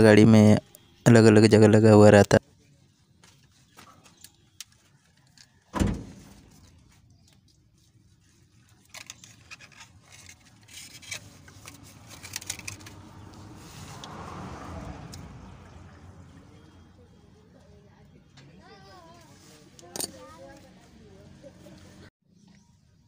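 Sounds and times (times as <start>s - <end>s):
thump under engine bay: 5.8s - 6.5s
wiring connectors clicking and rattling: 8.8s - 13.1s.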